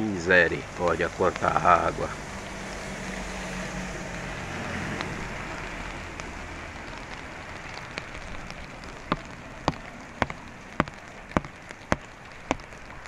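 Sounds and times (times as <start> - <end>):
heavy rain on a wet street: 0.0 - 13.0
sharp taps: 6.9 - 12.8.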